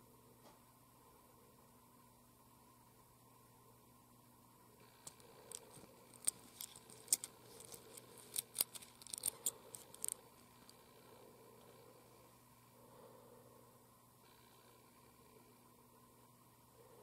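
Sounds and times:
wristwatch clicking: 5.0s - 10.2s.

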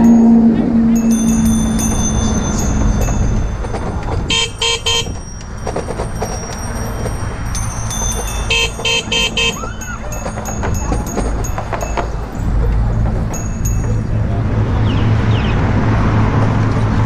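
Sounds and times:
wind rumble on microphone: 0.0s - 17.0s
bicycle horn toots: 4.3s - 5.2s, 8.5s - 10.0s.

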